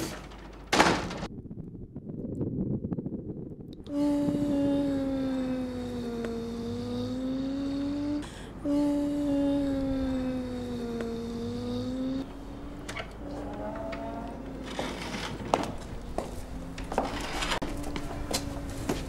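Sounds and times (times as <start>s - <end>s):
person humming long notes: 3.8s - 14.6s
breath: 8.2s - 9.0s.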